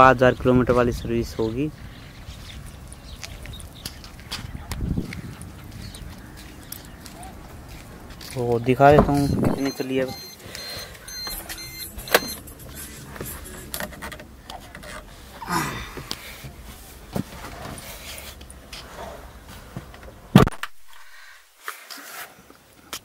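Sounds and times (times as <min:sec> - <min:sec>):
outside hum: 0:00.2 - 0:23.0
car door shutting: 0:08.9 - 0:09.8
keys jingling: 0:09.2 - 0:14.1.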